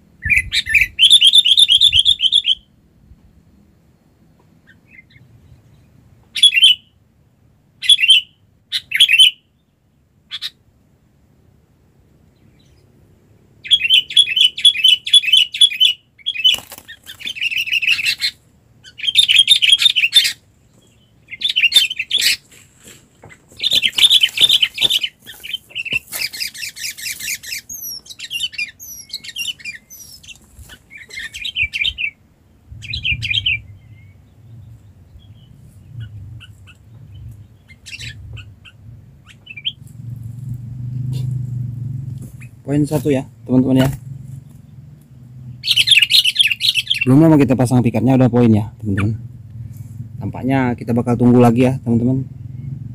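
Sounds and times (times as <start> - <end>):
bulbuls chattering and calling: 13.6 - 32.2, 32.8 - 41.5, 42.1 - 52.9
bird wings flapping: 16.4 - 17.4, 22.4 - 27.5.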